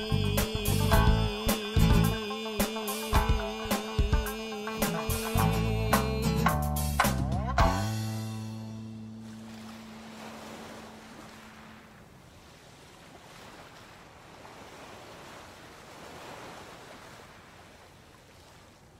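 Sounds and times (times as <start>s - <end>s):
small waves washing on shore: 9.1s - 18.9s.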